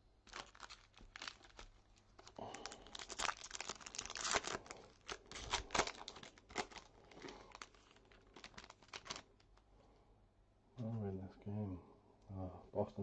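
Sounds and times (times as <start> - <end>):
plastic wrapper crinkling and tearing: 0.0 - 9.7.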